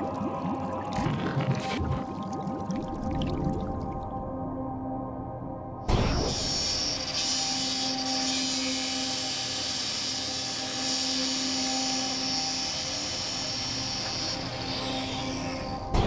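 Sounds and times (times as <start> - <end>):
angle grinder on metal: 6.3 - 15.8.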